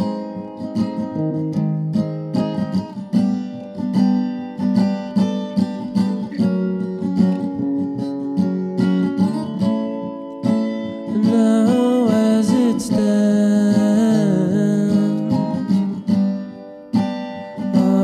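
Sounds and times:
acoustic guitar picking: 0.0s - 18.0s
person singing: 11.0s - 16.1s, 17.6s - 18.0s.

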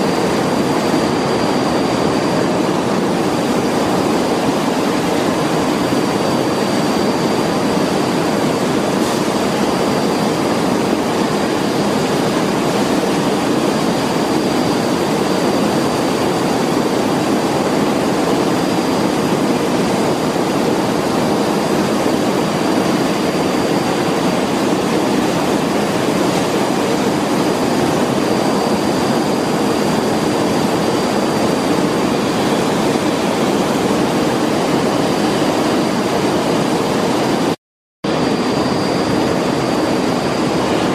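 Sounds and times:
factory hall rushing noise: 0.0s - 40.9s.

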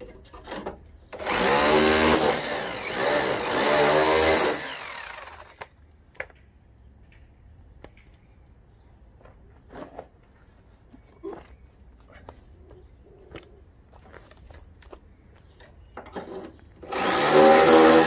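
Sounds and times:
drill chiselling steel: 1.2s - 5.6s, 16.8s - 18.0s.

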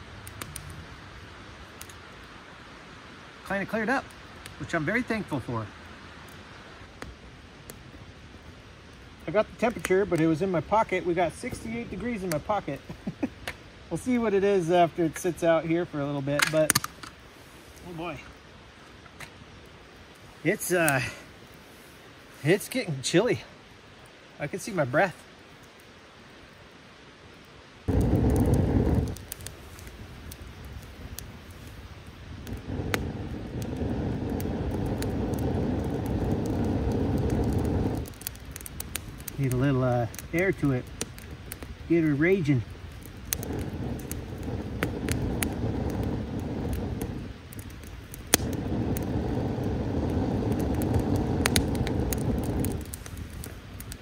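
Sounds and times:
campfire crackling and popping: 0.0s - 54.0s
rush of air: 27.9s - 39.4s, 43.0s - 54.0s.

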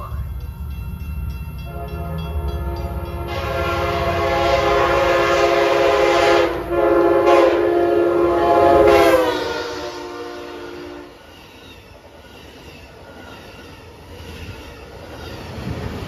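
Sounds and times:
train rumbling: 0.0s - 16.0s
train horn chord: 1.6s - 11.2s.

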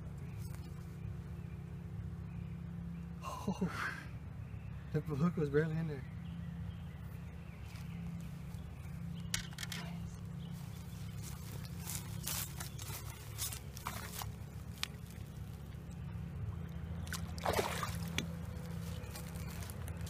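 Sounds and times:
water sloshing and splash: 10.8s - 20.0s
handling knocks and rustles: 10.9s - 15.3s, 18.0s - 20.0s.

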